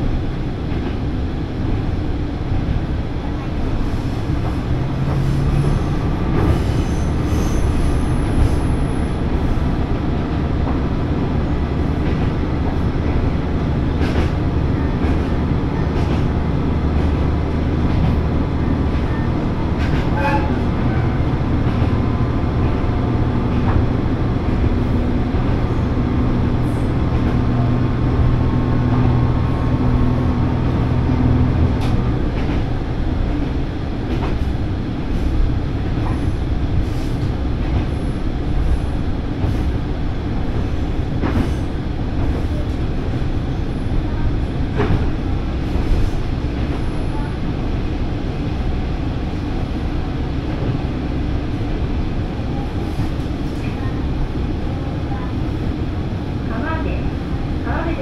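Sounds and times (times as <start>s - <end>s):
train engine hum: 0.0s - 58.0s.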